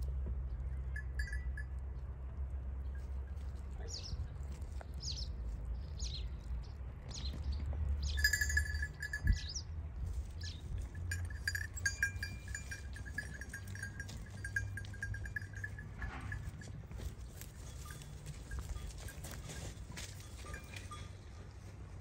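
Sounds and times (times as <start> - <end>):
sheep bell jingling: 0.6 - 5.2, 7.1 - 22.0
small birds chirping: 3.8 - 9.7.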